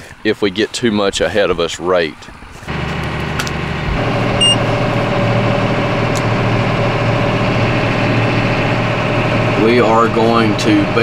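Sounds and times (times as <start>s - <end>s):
tractor engine running: 2.3s - 11.0s.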